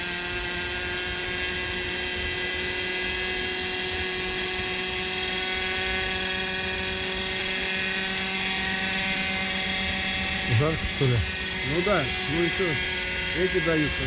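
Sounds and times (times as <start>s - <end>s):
model helicopter rotor whine: 0.0s - 14.0s.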